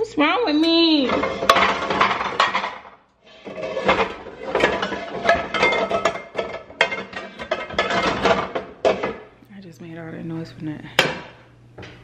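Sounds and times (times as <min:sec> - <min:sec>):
dishes and utensils clattering: 0:00.5 - 0:09.3.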